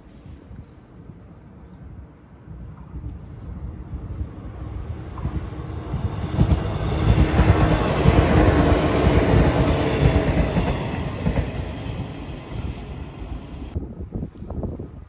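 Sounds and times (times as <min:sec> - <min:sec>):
electric train passing: 0:03.6 - 0:13.8
train wheels knocking on rails: 0:05.1 - 0:13.5.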